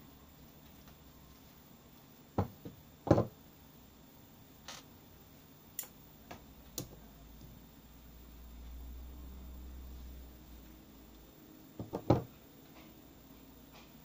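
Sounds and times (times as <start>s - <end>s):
metal tools knocking on wooden desk: 2.4s - 3.3s, 11.8s - 12.3s.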